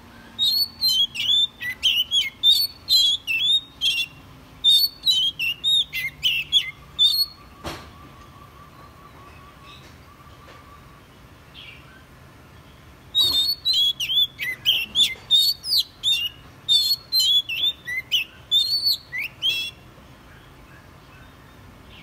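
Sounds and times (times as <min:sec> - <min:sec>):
bird singing whistled phrases: 0:00.2 - 0:11.0, 0:13.1 - 0:19.8.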